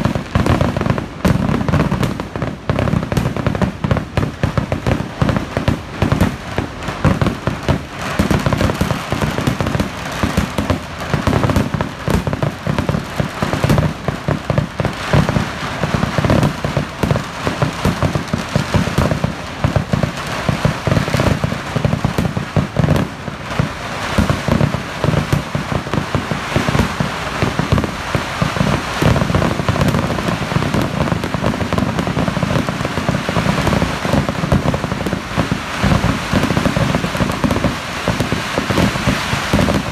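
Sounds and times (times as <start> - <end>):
fireworks bangs and crackling: 0.0 - 39.9.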